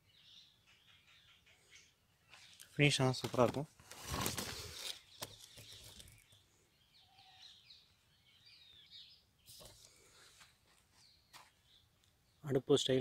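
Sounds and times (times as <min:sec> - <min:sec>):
faint bird chirps: 0:00.0 - 0:02.9, 0:04.8 - 0:13.0.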